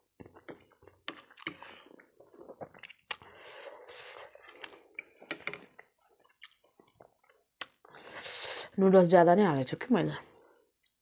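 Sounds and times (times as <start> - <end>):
wet slurping and chewing: 0.1 - 7.9.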